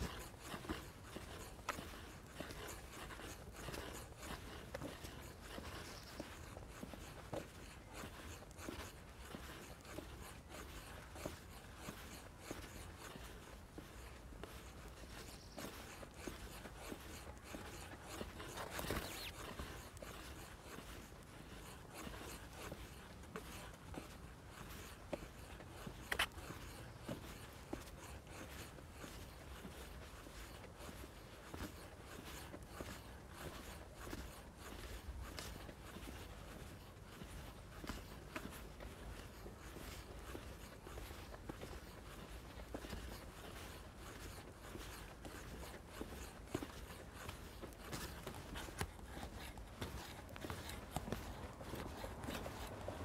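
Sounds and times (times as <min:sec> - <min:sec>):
faint outdoor background: 0:00.0 - 0:53.0
footsteps scuffing on path: 0:00.0 - 0:53.0.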